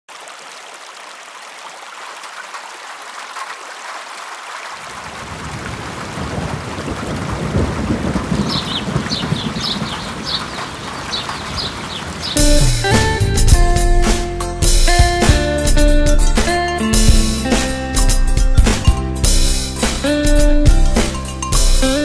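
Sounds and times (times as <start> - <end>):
rain hiss: 4.6 - 13.6
thunder rumble: 5.2 - 10.9.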